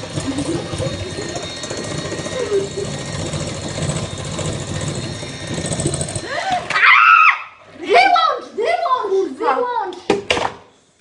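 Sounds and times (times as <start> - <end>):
electric hand mixer whirring: 0.0 - 6.8.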